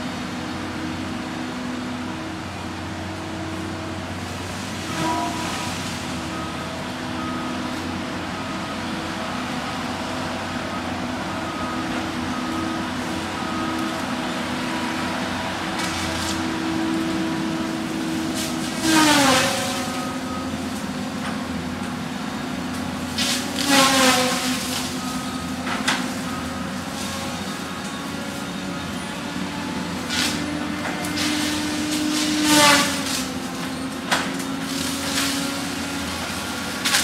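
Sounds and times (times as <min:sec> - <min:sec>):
heavy machine running: 0:00.0 - 0:37.0
saw head whining through tree: 0:11.5 - 0:37.0.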